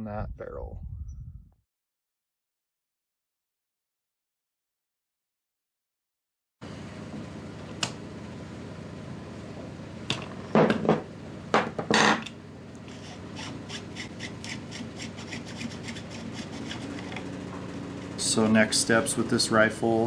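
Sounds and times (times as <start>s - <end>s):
metal-on-metal scraping: 12.9s - 17.3s.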